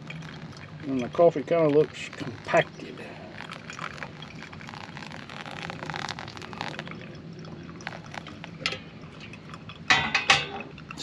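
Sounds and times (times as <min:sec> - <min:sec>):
water pouring onto coffee grounds: 0:00.0 - 0:11.0.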